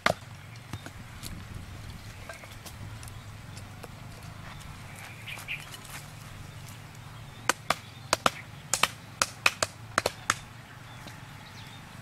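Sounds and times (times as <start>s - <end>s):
wood pounding a stake: 0.0s - 1.0s, 7.4s - 10.5s.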